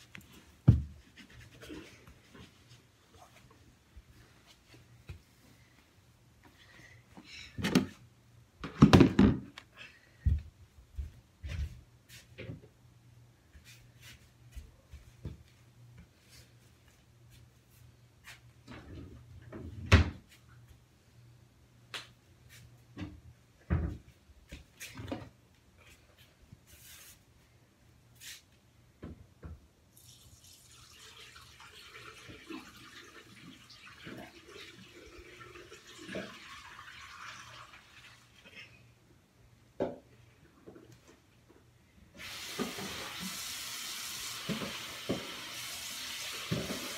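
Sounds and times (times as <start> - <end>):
tap water running: 30.0 - 38.5, 42.2 - 46.9.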